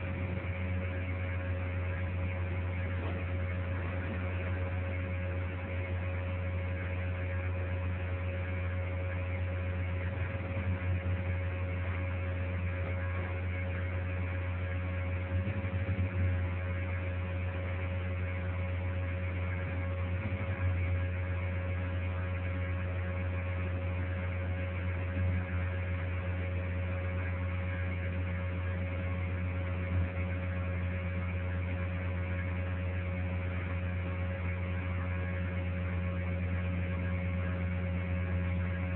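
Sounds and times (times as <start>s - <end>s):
low electrical hum: 0.0s - 38.9s.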